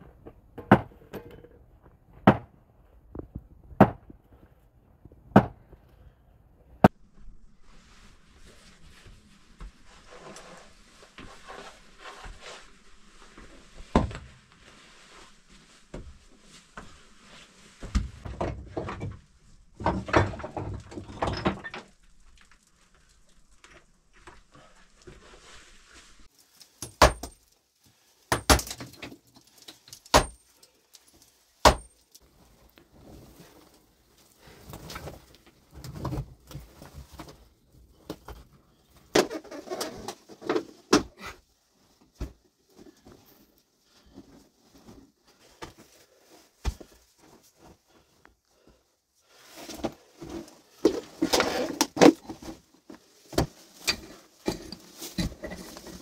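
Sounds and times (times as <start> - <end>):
rocks and soil scraping: 49.3 - 56.0.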